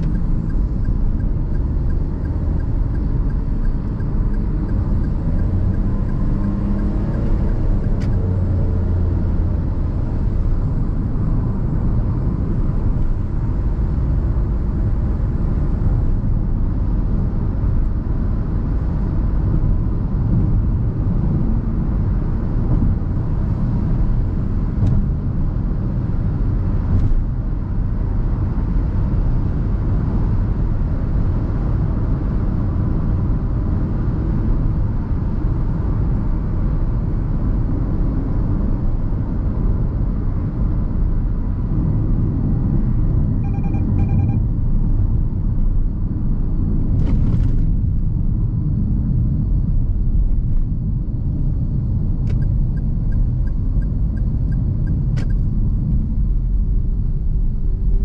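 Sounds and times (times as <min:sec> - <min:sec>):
car cabin road and engine rumble: 0:00.0 - 0:58.0
electronic beeps: 0:43.4 - 0:44.4.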